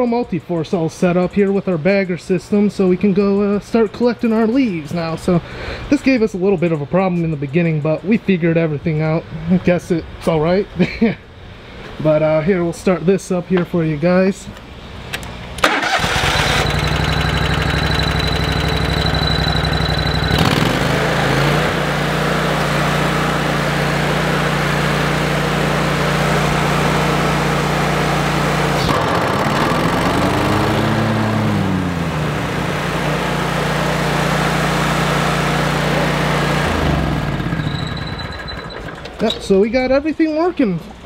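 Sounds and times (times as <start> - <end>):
mower engine running: 15.6 - 39.2.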